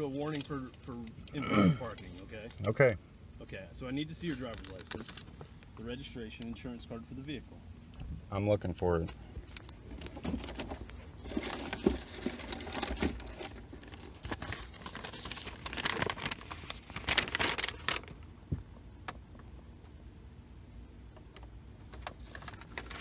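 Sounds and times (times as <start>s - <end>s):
papers rustling and crinkling: 4.2s - 5.6s, 9.4s - 18.2s, 21.8s - 23.0s.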